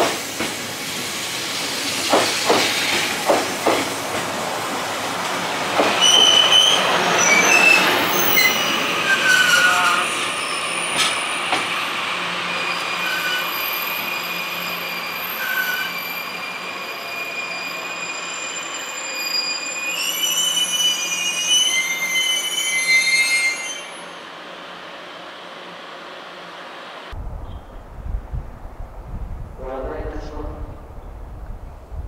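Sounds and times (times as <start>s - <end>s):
train rolling: 0.0s - 27.2s
train brakes squealing: 5.9s - 11.8s, 12.4s - 24.3s.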